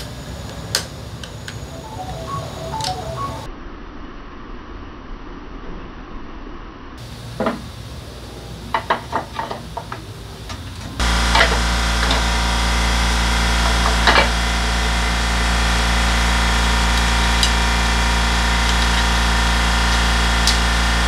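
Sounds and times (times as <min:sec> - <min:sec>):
loud steady hum: 0:07.0 - 0:21.0.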